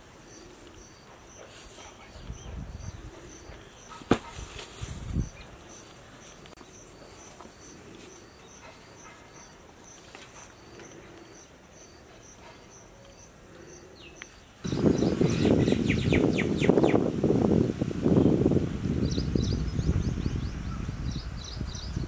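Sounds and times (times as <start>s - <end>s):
faint outdoor ambience: 0.0s - 22.0s
dull thump: 4.0s - 4.7s.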